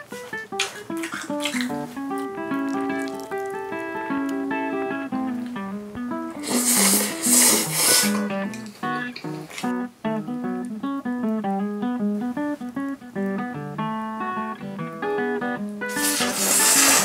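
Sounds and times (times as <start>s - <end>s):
acoustic guitar picking melody: 0.0s - 17.0s
bright hissy swell: 6.4s - 8.3s, 15.9s - 17.0s.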